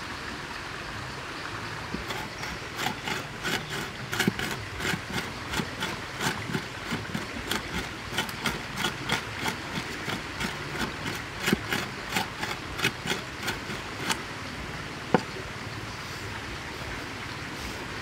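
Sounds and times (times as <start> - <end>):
cleaver chopping on wooden board: 2.0 - 14.2.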